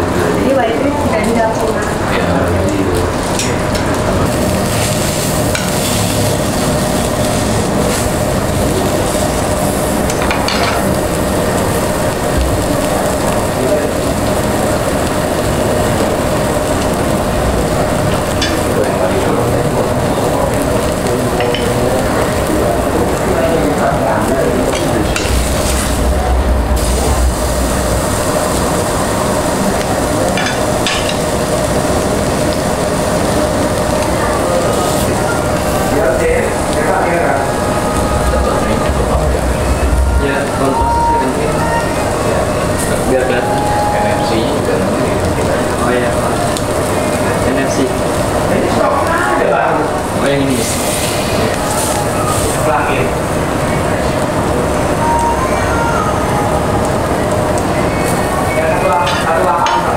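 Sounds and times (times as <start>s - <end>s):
meat sizzling on a grill: 0.0s - 59.9s
steady rumble: 22.0s - 34.0s, 35.1s - 45.8s.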